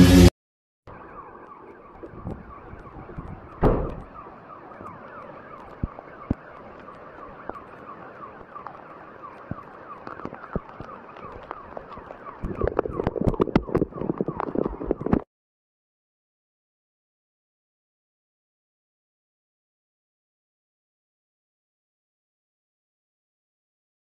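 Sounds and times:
alarm siren: 0.9s - 15.2s
loud knock: 3.6s - 4.0s.

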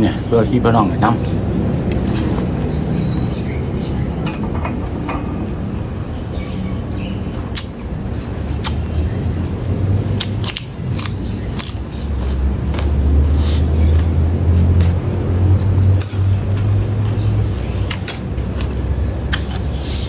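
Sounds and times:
crunchy chewing: 8.6s - 20.0s
breath blown through lips: 19.7s - 20.0s.

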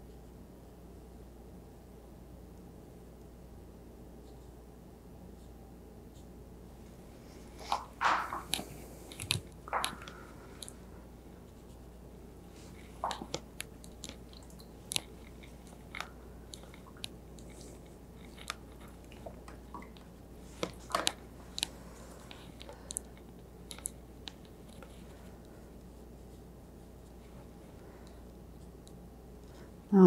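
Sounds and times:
faint low hum: 0.0s - 30.0s
brush tapping on paper: 7.7s - 8.7s.

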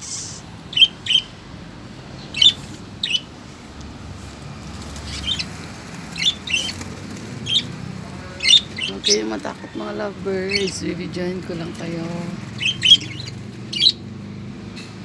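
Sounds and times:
budgerigars chirping: 0.6s - 1.4s, 2.2s - 3.3s, 5.0s - 14.0s.

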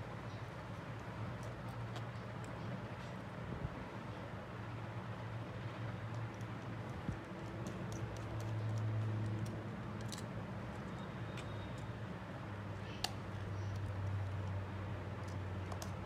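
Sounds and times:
small tools clicking: 6.0s - 11.9s, 15.2s - 16.0s.

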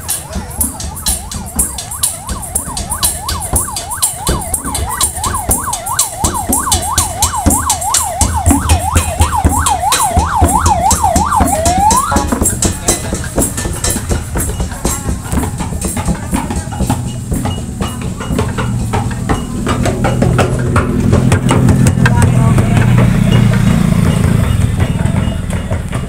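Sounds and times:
electronic yelp siren: 0.0s - 12.8s.

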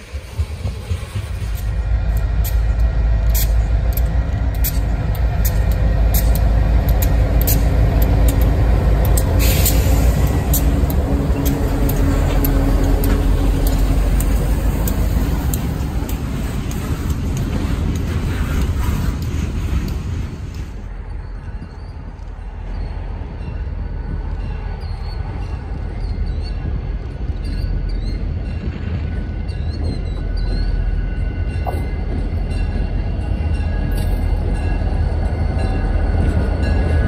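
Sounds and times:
wheels clicking over rails: 0.0s - 23.4s
diesel locomotive engines droning: 0.0s - 37.0s.

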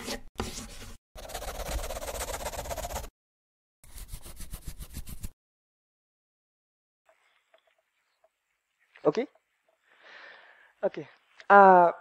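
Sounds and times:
marker pen drawing on paper: 1.2s - 3.1s.

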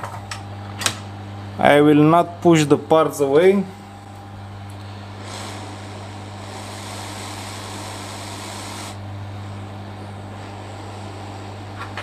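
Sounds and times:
hot air blower hissing: 4.7s - 12.0s.

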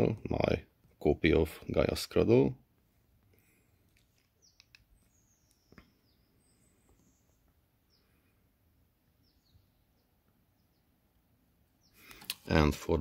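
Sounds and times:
faint high chirps: 3.4s - 11.0s.

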